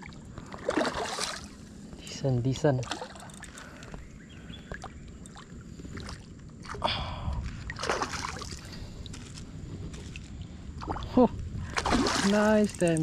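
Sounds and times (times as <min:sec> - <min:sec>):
water splashes: 0:00.0 - 0:01.7, 0:02.7 - 0:03.6, 0:07.6 - 0:09.4, 0:10.0 - 0:13.0
water sloshing and lapping: 0:00.0 - 0:13.0.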